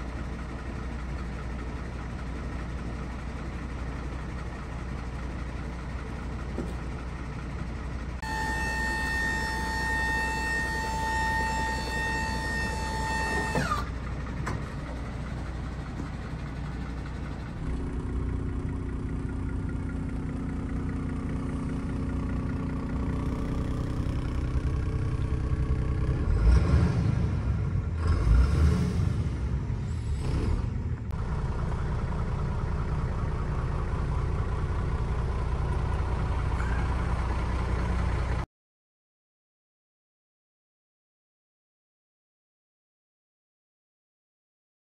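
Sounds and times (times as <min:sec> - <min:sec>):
diesel engine idling: 0:00.0 - 0:38.5
electric pump whining: 0:08.2 - 0:14.0.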